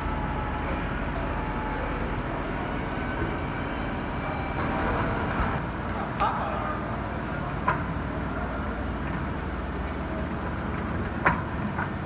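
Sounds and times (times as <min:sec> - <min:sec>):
truck mechanical drone: 0:00.0 - 0:06.0.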